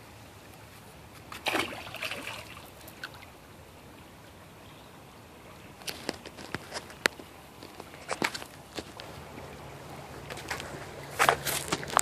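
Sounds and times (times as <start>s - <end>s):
creek water trickling over rocks: 0.0s - 12.0s
splash of wading: 1.3s - 3.3s.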